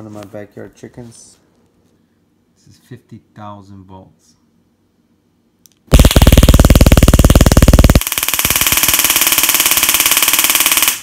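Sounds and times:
stun gun electric crackle: 0:05.9 - 0:11.0.

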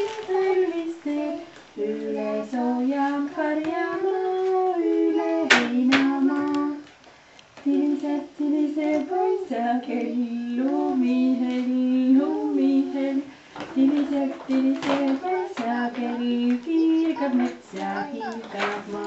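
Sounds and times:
woman and child singing: 0:00.0 - 0:06.9, 0:07.6 - 0:19.0
sharp clicks or claps: 0:05.5 - 0:07.7.

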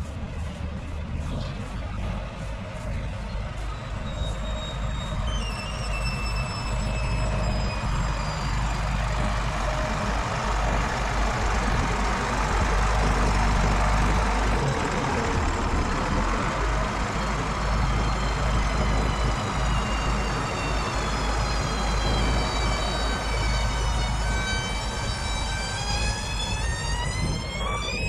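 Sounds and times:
diesel engine rumbling: 0:00.0 - 0:28.0.

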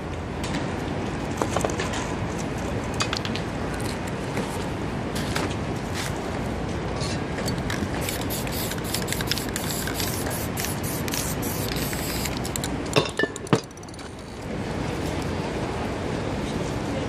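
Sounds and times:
spray paint can hissing: 0:08.0 - 0:12.7.

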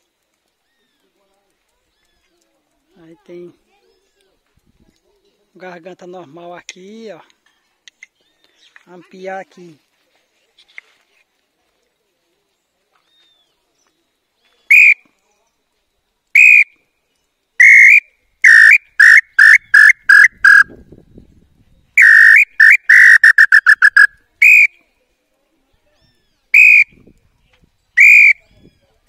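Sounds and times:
bird call whistle notes: 0:14.7 - 0:15.0, 0:16.4 - 0:16.8, 0:17.6 - 0:20.8, 0:22.0 - 0:24.8, 0:26.5 - 0:27.0, 0:28.0 - 0:28.5.

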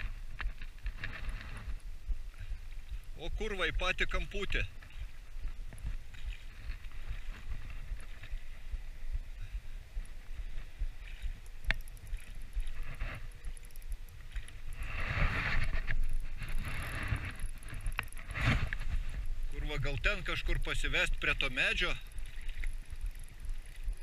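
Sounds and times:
rustling noise: 0:00.0 - 0:03.0, 0:12.5 - 0:13.6, 0:14.3 - 0:19.6
wind rumbling on microphone: 0:00.0 - 0:24.0.

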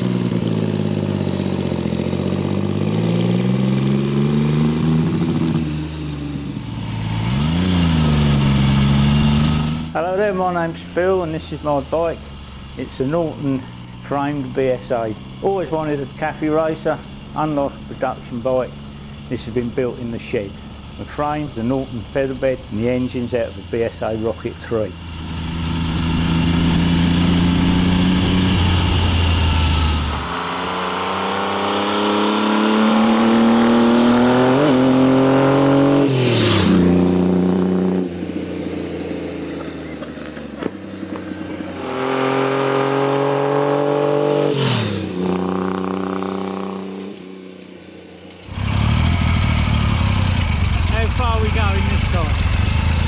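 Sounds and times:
motorcycle engine passing by: 0:00.0 - 0:10.0, 0:25.0 - 0:47.5, 0:48.4 - 0:53.0.

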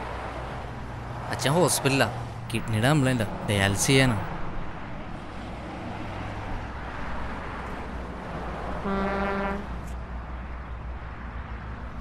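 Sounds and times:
street traffic noise: 0:00.0 - 0:12.0
vehicle horn honk: 0:08.8 - 0:09.8.

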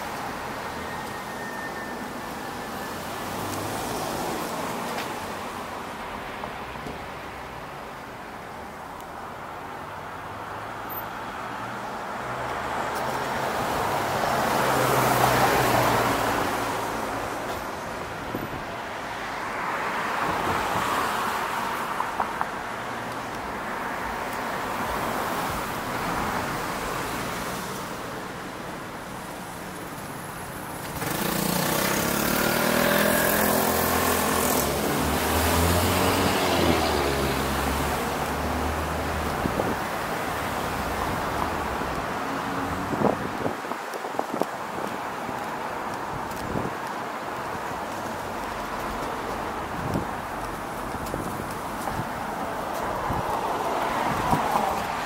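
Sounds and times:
cars passing: 0:00.0 - 0:55.0
close engine revving: 0:30.9 - 0:37.9.

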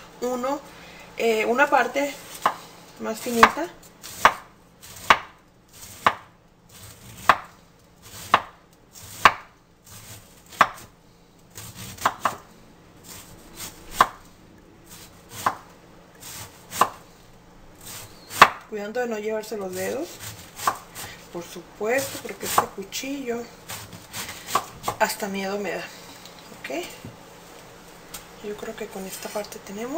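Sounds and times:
knife slicing cabbage: 0:03.2 - 0:14.3, 0:14.9 - 0:17.0, 0:17.8 - 0:18.7, 0:19.6 - 0:21.3, 0:21.9 - 0:22.8, 0:23.5 - 0:25.2.

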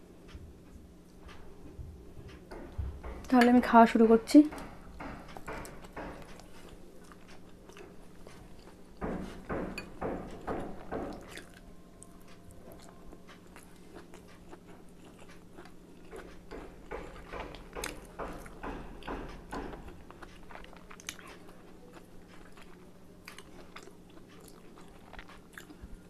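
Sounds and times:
person chewing food: 0:05.2 - 0:26.0.

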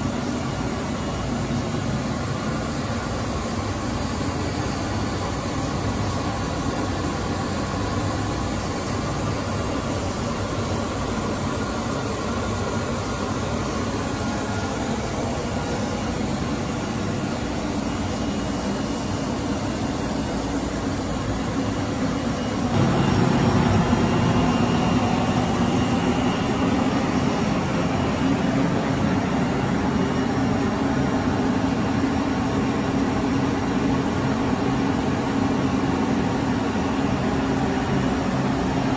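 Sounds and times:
machinery hum: 0:00.0 - 0:32.0
low drone: 0:22.7 - 0:28.4.

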